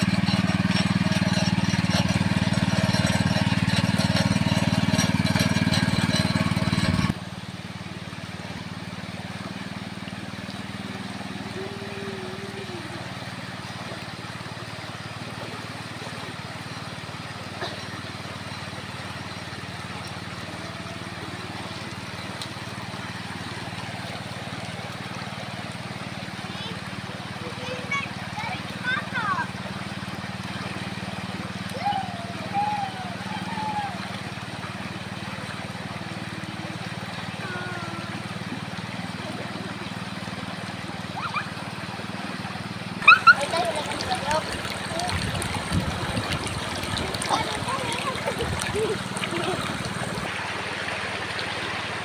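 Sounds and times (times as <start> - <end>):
river rushing over stones: 0.0 - 52.0
river rushing over rocks: 33.6 - 52.0.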